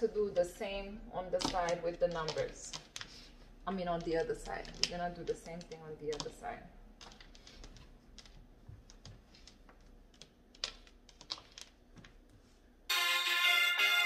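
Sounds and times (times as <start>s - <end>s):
marker being handled: 7.0s - 12.5s
cloth rustling on a desk: 7.0s - 12.8s
loud instrumental music: 12.9s - 14.0s.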